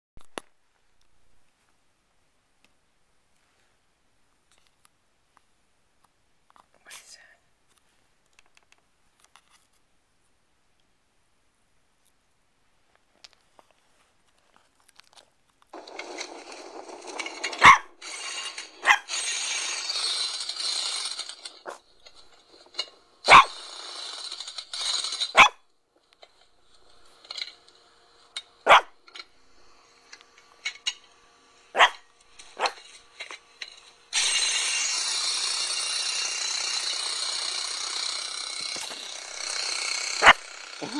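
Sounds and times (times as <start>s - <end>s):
dog barking: 17.6s - 17.9s, 18.8s - 19.1s, 23.3s - 23.6s, 25.4s - 25.6s, 28.6s - 29.0s, 31.8s - 32.0s, 32.6s - 32.8s, 40.2s - 40.4s.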